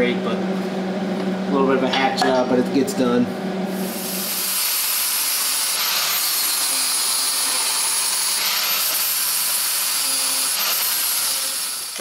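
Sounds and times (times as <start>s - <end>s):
angle grinder grinding metal: 3.7s - 12.0s.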